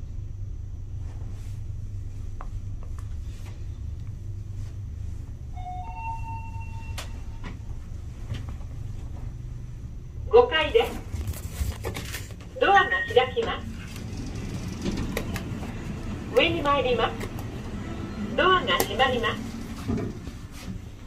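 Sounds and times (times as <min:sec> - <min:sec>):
elevator low rumble: 0:00.0 - 0:21.0
two-note electronic tone: 0:05.5 - 0:07.8.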